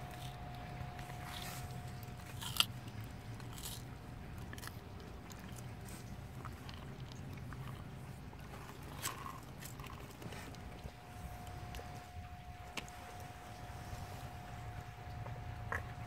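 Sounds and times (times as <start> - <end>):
tortoise crunching vegetables: 0.0 - 16.0.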